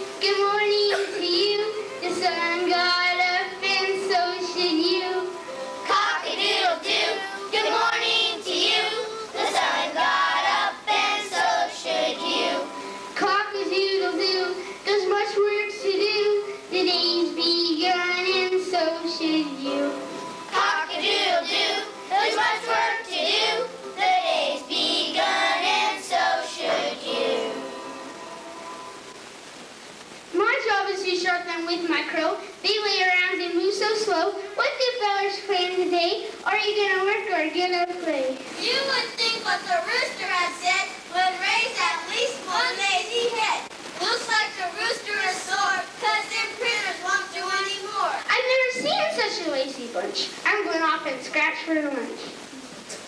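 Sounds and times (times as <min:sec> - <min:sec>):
child singing into a microphone: 0:00.0 - 0:27.6.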